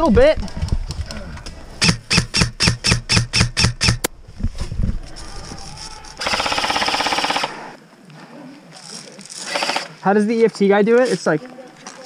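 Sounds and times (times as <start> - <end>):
airsoft gun full-auto burst: 6.2 - 7.8, 9.4 - 9.9.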